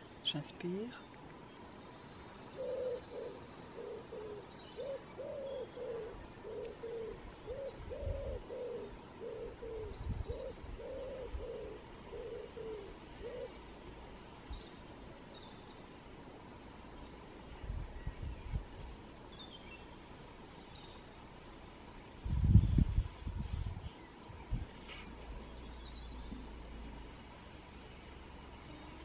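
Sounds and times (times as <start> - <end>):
bird hooting: 2.6 - 13.7.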